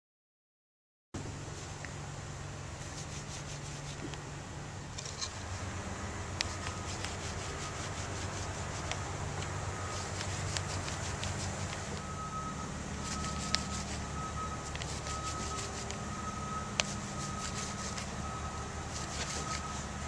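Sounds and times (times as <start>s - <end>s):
low engine-like rumble: 1.2s - 20.0s
hand rubbing against fur: 2.8s - 4.1s, 6.4s - 9.1s, 9.8s - 12.1s, 12.9s - 18.2s, 18.8s - 20.0s
faint short beeps: 11.9s - 20.0s.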